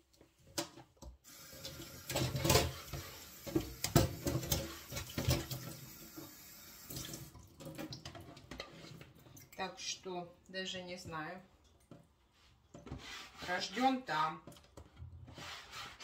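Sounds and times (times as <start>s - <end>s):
tap running into sink: 1.6s - 7.2s.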